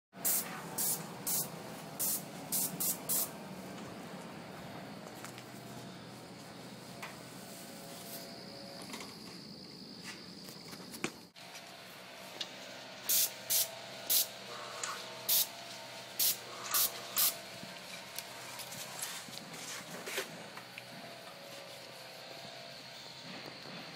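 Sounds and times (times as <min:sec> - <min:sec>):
short bursts of spray hiss: 0:00.2 - 0:03.3, 0:13.0 - 0:17.4
paint sprayer hissing: 0:00.2 - 0:03.7, 0:13.0 - 0:23.9.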